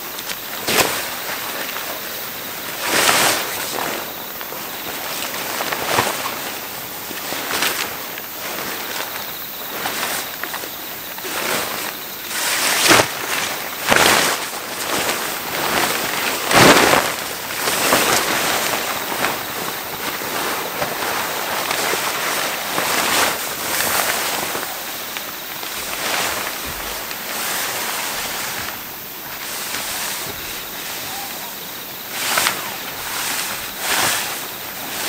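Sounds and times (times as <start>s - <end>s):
tent fly sheet rustling and flapping: 0.0s - 35.0s.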